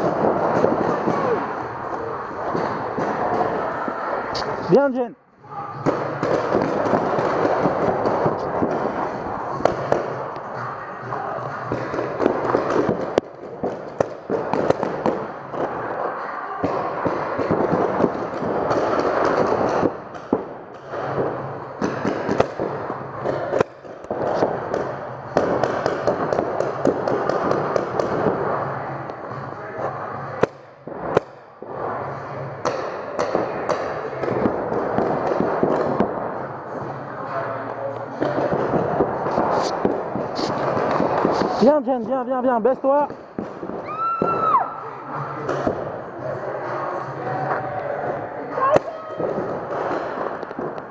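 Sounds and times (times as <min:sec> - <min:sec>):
paintballs hitting inflatable bunkers: 0:00.0 - 0:03.7, 0:05.8 - 0:10.3, 0:11.7 - 0:16.0, 0:16.6 - 0:28.6, 0:32.6 - 0:36.4, 0:38.2 - 0:41.9
paintball markers firing: 0:11.7 - 0:15.8.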